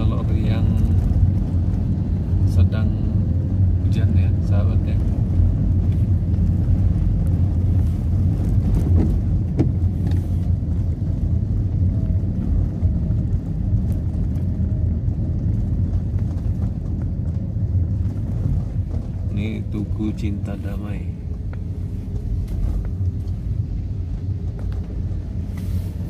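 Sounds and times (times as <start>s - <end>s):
car cabin engine and tyre rumble: 0.0s - 26.0s.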